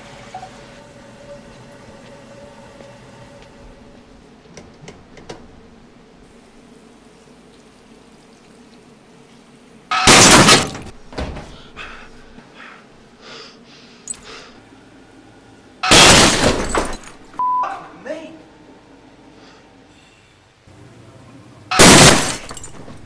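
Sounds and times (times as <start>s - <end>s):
glass breaking crash: 9.9s - 10.9s, 15.8s - 17.4s, 21.7s - 23.0s
smaller crashes and rattles: 9.9s - 11.8s, 15.8s - 17.4s, 21.7s - 23.0s.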